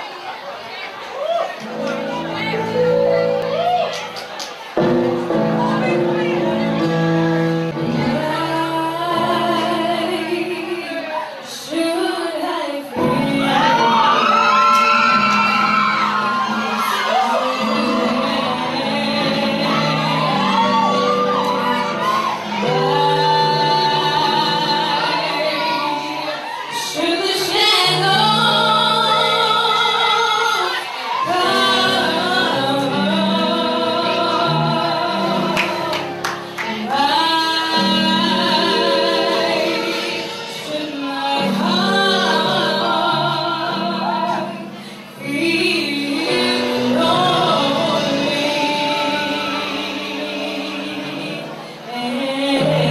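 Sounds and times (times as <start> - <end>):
low backing accompaniment: 1.6 - 52.9
woman singing gospel: 7.8 - 52.9
singer breathing: 44.7 - 45.2.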